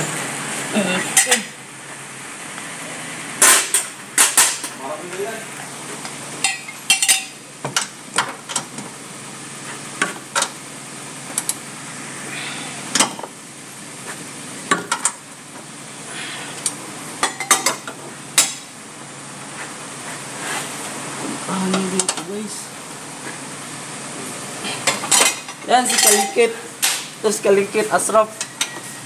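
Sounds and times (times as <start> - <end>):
spanners clinking on metal: 6.4 - 7.4, 25.0 - 26.6.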